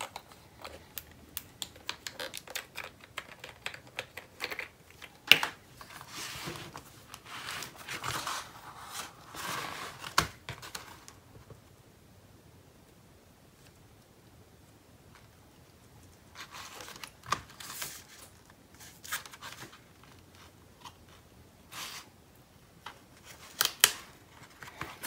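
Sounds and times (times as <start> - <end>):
paper rustling and sliding: 5.8 - 11.1.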